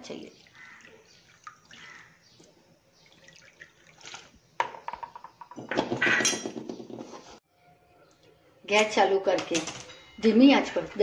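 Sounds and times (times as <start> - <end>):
water pouring and splashing: 0.4 - 4.4.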